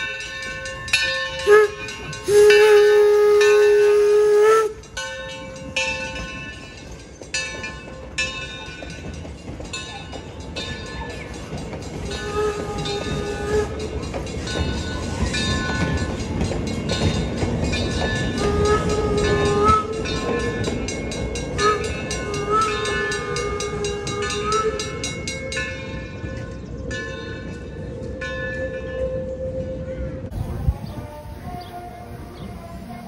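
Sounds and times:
train wheel and rail rumble: 0.0 - 33.0
steam whistle: 1.4 - 5.0, 12.1 - 14.0, 18.3 - 20.5, 21.6 - 25.1, 29.2 - 33.0.

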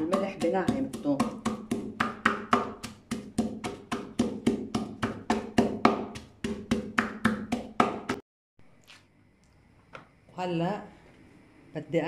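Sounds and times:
pestle pounding in wooden mortar: 0.0 - 8.2.

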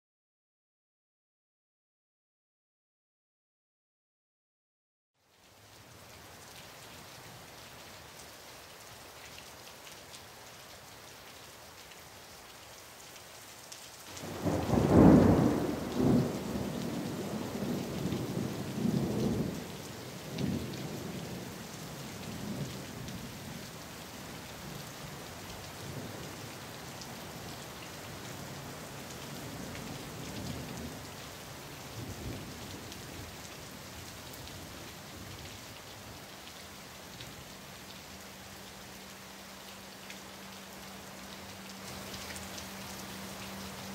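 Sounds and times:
steady rain: 5.2 - 43.9
thunder rumbling: 14.2 - 21.4.

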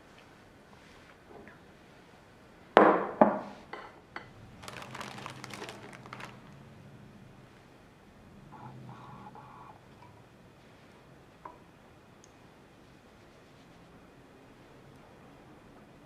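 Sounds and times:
crockery knocking on countertop: 2.8 - 3.9
plastic packet crinkling: 4.5 - 6.6.

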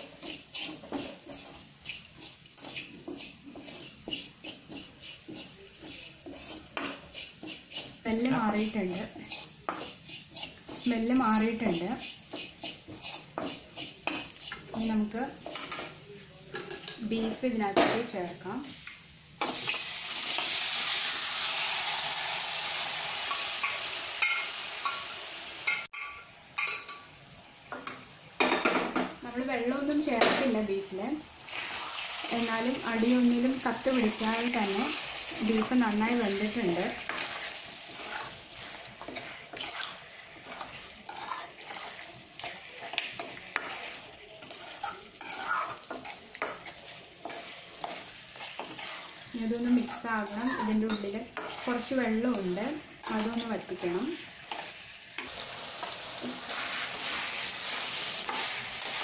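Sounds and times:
spoon scraping and clinking metal: 0.0 - 14.8, 35.4 - 53.9
meat sizzling in hot pan: 0.0 - 16.0, 16.6 - 28.4, 29.1 - 59.0.

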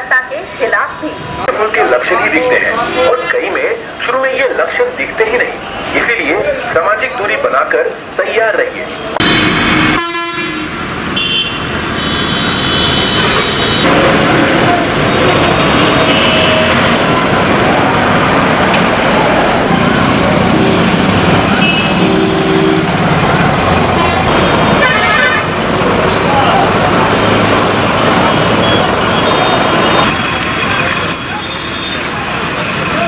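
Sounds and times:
passing vehicles: 0.0 - 33.0
car horns honking: 9.2 - 17.5, 20.4 - 23.2, 23.8 - 25.7, 27.4 - 33.0.

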